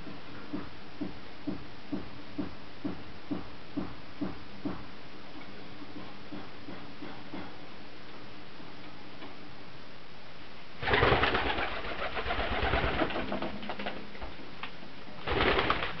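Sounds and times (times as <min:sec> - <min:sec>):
pigeon wings flapping: 0:10.8 - 0:14.3, 0:15.2 - 0:16.0.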